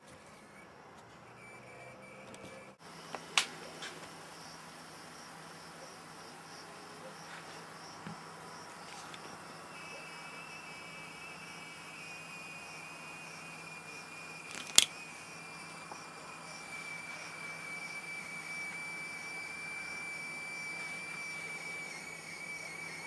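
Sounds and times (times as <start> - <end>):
crickets trilling: 0.2 - 23.0
pulsing insect chirring: 0.3 - 23.0
sharp click: 14.5 - 14.9.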